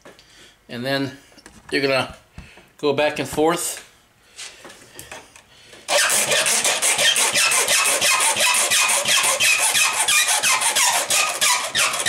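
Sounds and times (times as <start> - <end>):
file squealing: 5.9 - 12.0
hand file rasping on brass: 5.9 - 12.0.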